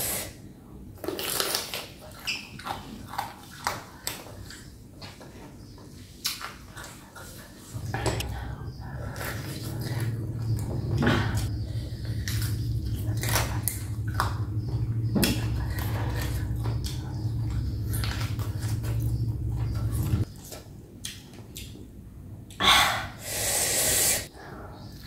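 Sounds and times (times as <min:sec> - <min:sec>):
wet crunchy chewing: 0:11.3 - 0:21.8.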